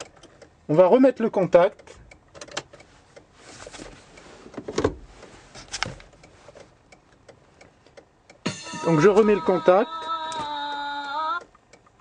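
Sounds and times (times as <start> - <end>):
faint rustling and handling noise: 2.7 - 8.0.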